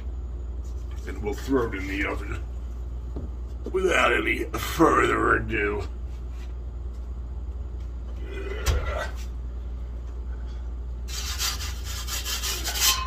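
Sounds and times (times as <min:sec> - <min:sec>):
pizza peel scraping on steel: 0:11.1 - 0:13.0.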